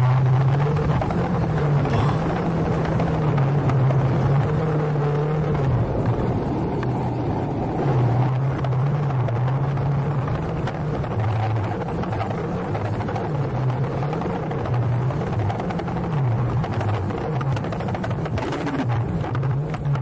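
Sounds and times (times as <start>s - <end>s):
vehicle engine under load: 0.0s - 20.0s
noisy rumble: 1.2s - 3.6s.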